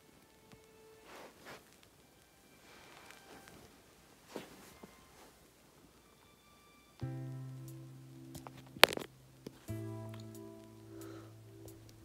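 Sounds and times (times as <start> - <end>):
background music chords: 6.4 - 12.0.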